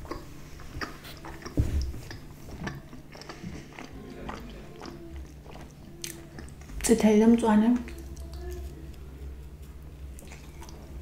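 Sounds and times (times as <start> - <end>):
wet mouth clicks: 0.0 - 6.8
chewing pizza: 0.0 - 11.0.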